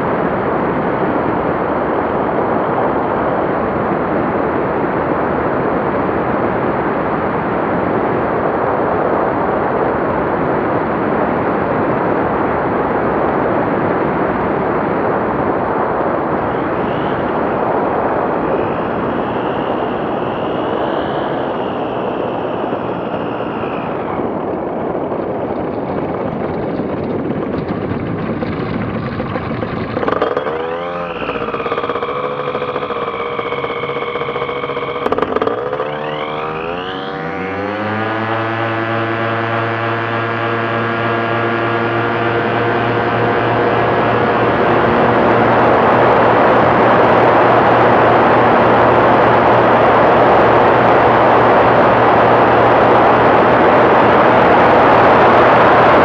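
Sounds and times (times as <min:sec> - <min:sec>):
aircraft engine and propeller: 0:00.0 - 0:56.0
rushing air noise: 0:14.0 - 0:56.0.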